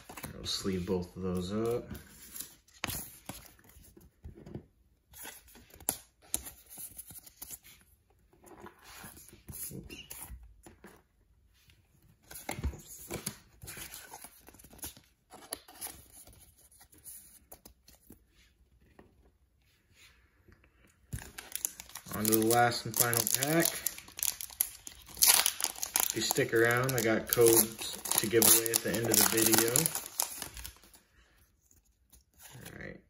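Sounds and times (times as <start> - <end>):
plastic card sleeves crinkling: 21.1 - 31.0.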